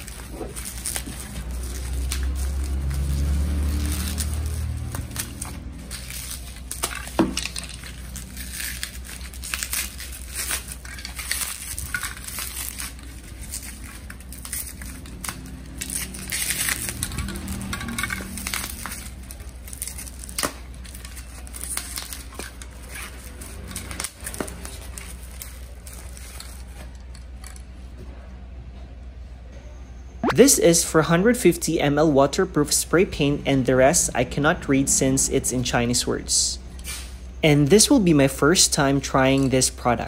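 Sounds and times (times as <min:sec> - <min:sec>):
bubble wrap crinkling: 0:00.0 - 0:27.6
plastic bag crinkling: 0:00.0 - 0:27.6.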